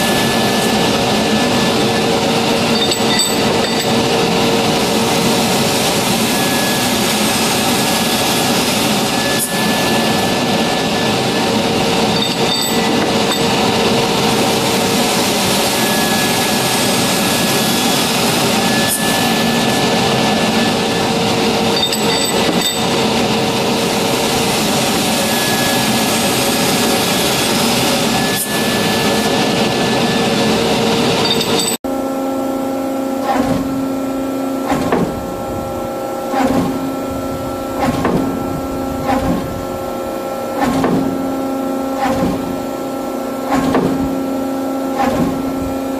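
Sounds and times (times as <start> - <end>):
circular saw cutting metal: 0.0 - 31.8
steady machine tone: 0.0 - 33.2.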